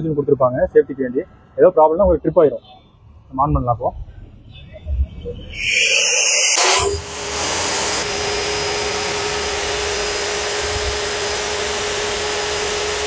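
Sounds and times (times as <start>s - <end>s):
electric core drill running: 5.6s - 13.0s.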